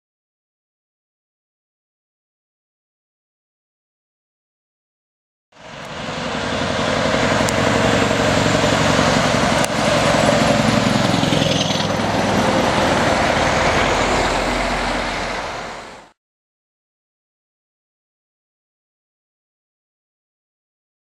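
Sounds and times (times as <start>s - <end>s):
diesel engine drone: 5.5s - 16.2s
tyre and road noise: 5.6s - 16.2s.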